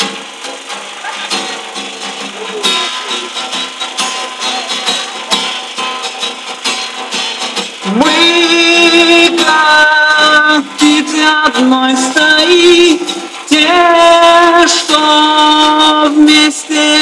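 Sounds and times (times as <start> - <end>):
acoustic guitar strumming: 0.0 - 17.0
man singing: 7.8 - 17.0.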